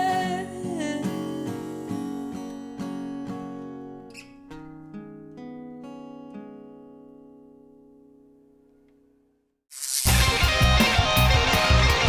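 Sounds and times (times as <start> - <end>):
acoustic guitar strumming: 10.1 - 12.0.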